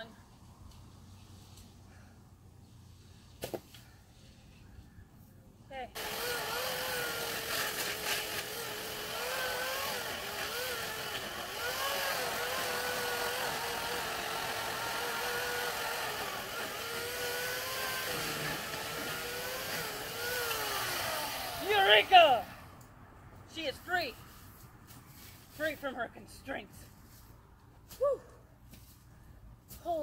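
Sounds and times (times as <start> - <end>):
chainsaw cutting wood: 6.0 - 22.6.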